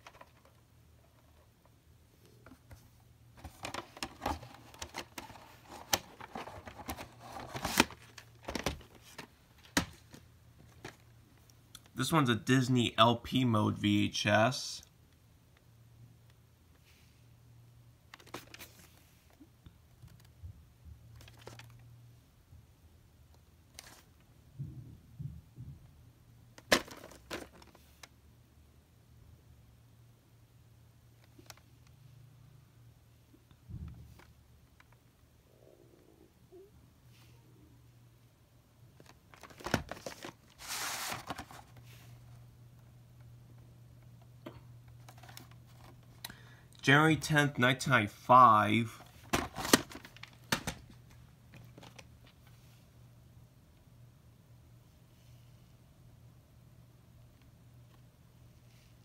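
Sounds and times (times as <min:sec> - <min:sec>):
plastic clicks and rustling: 0:00.0 - 0:01.4, 0:03.4 - 0:11.9, 0:18.1 - 0:18.9, 0:21.1 - 0:21.8, 0:39.0 - 0:41.8, 0:44.1 - 0:46.4
tape box swish: 0:39.7 - 0:41.7
tape sliding in sleeve: 0:40.6 - 0:41.3.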